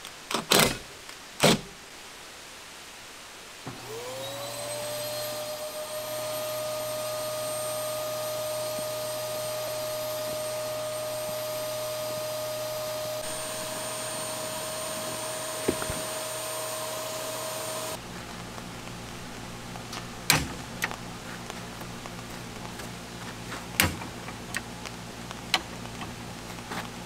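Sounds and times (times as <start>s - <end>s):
electric motor whine: 3.7s - 18.1s.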